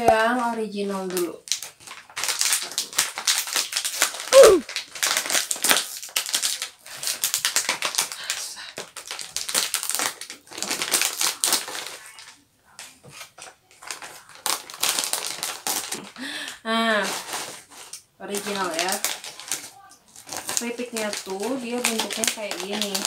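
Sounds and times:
plastic bag crinkling: 0.1s - 23.0s
short falling vocal sound: 4.3s - 4.6s.

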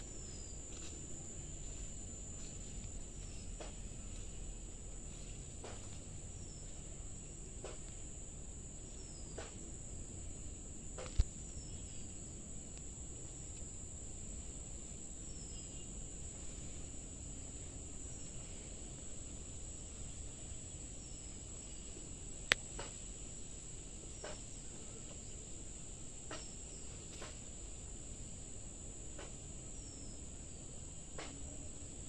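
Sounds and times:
insects droning: 0.0s - 32.0s
clicks and snaps in plants: 11.0s - 11.4s, 22.4s - 23.1s.

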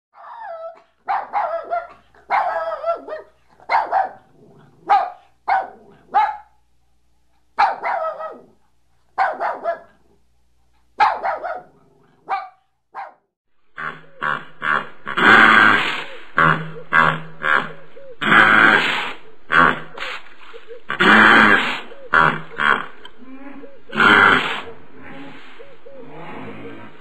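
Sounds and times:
dog barking: 0.2s - 6.6s, 7.6s - 8.6s, 9.2s - 10.1s, 11.0s - 13.3s.

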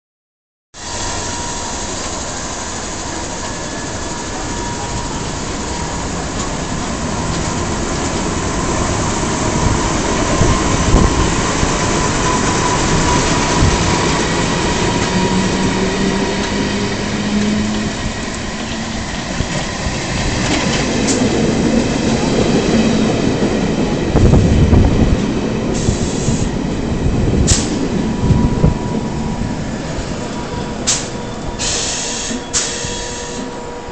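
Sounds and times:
train motor whine rising: 0.8s - 22.9s
short sharp train sounds: 27.4s - 28.8s, 30.8s - 33.9s.

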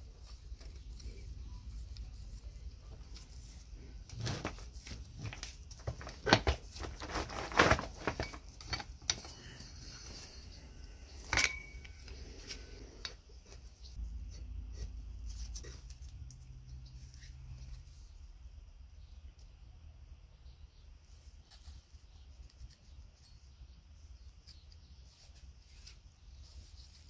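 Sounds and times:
metal clinks and scrapes: 6.8s - 12.6s.

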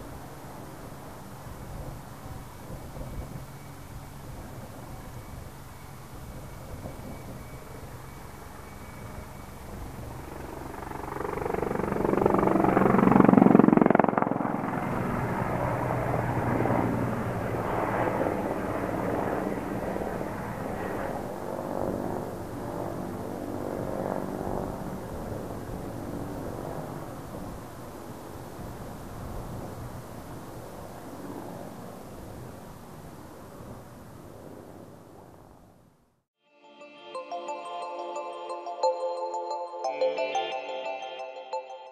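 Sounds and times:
helicopter engine hum: 0.2s - 27.2s
helicopter rotor beating: 6.4s - 27.0s.

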